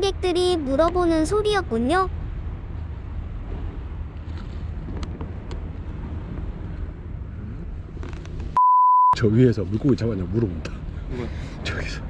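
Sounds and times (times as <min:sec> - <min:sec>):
wind rumble on microphone: 0:02.1 - 0:08.6.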